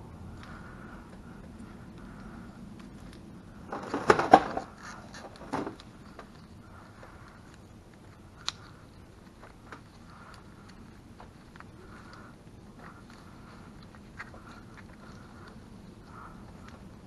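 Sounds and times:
faint ticks: 5.8 - 17.0.

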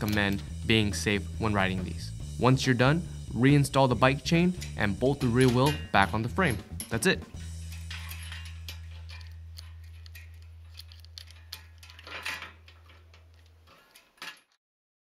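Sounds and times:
bicycle chain clicking and rattling: 4.5 - 14.6.

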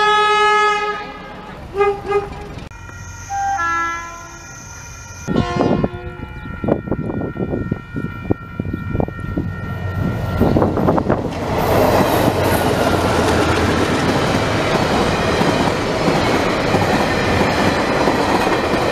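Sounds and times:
held multi-note horn tone: 0.0 - 10.5
locomotive engine drone: 0.0 - 18.9
train wheels rumbling on rails: 0.7 - 3.4, 4.1 - 18.9.

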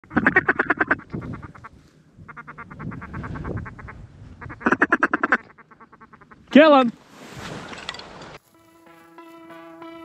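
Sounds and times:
duck call quacks: 0.1 - 6.4.

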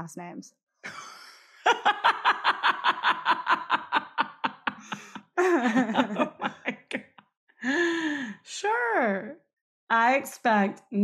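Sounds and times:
women laughing: 0.9 - 7.0.

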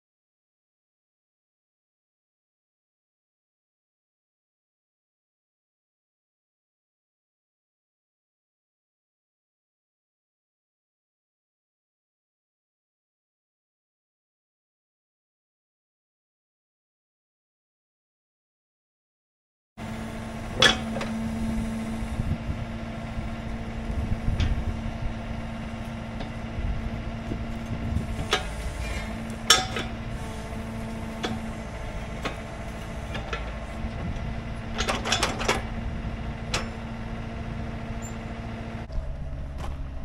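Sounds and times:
excavator engine running: 19.8 - 40.0
sharp metal clanks: 28.3 - 29.9.

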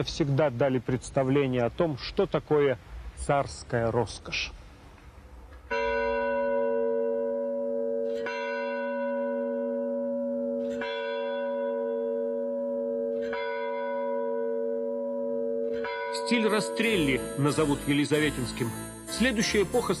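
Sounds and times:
bell ringing: 5.7 - 20.0.

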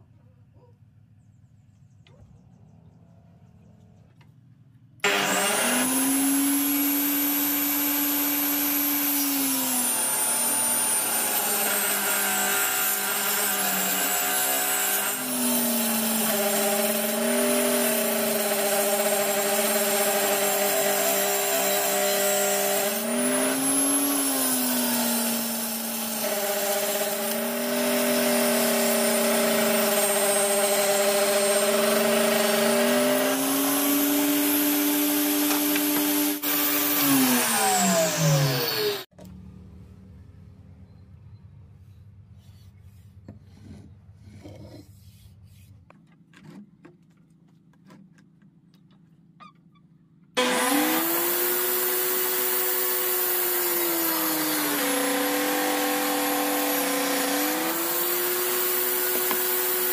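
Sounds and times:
saw blade cutting wood: 5.0 - 39.1, 50.4 - 59.9
table saw whining: 5.0 - 39.2, 50.4 - 59.9.

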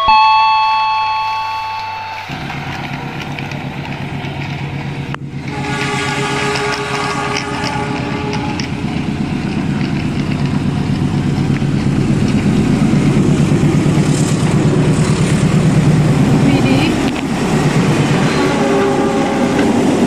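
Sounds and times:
steady electronic tone: 0.0 - 3.9
wheel rattle: 2.3 - 20.0
toy train motor hum: 5.4 - 15.8.

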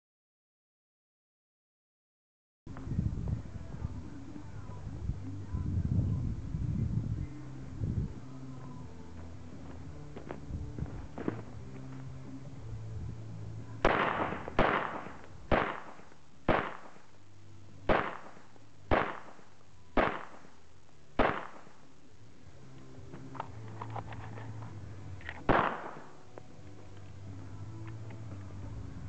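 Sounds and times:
pistol shots with echo: 13.8 - 17.1, 17.9 - 20.6, 21.2 - 21.9, 25.4 - 26.2.

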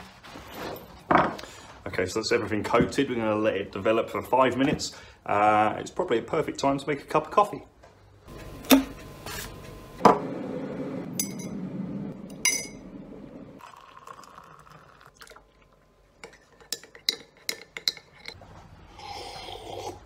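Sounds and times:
mug and teaspoon clinking: 12.4 - 12.8, 16.2 - 18.4
hot water pouring into a mug: 13.6 - 15.7
teaspoon stirring in a mug: 16.2 - 18.4.

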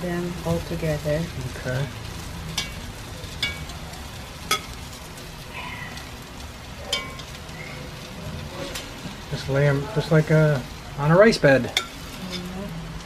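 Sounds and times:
chicken sizzling in a pot: 0.0 - 13.0
metal tongs clicking on pot: 2.5 - 4.8, 6.8 - 7.6.

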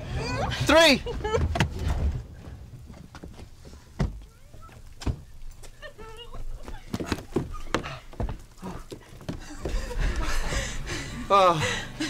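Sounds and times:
car doors thumping: 3.0 - 4.3.

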